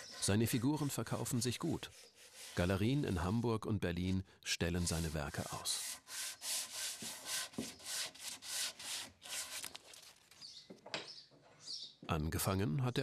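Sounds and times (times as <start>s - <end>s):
hand sanding wood: 0.0s - 3.3s, 4.8s - 9.6s.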